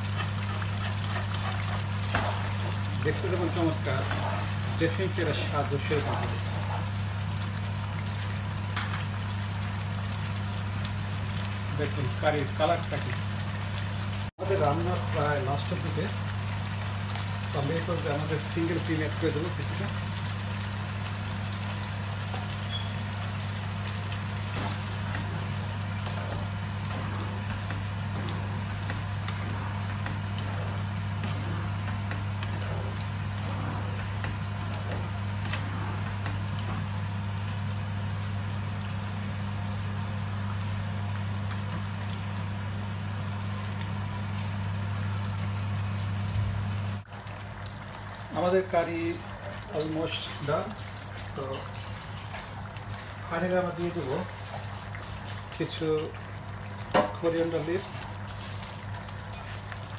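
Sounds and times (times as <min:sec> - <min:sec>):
spatula stirring: 0:00.0 - 0:07.1, 0:17.3 - 0:37.1, 0:49.0 - 0:59.9
curry bubbling in a pan: 0:00.0 - 0:59.9.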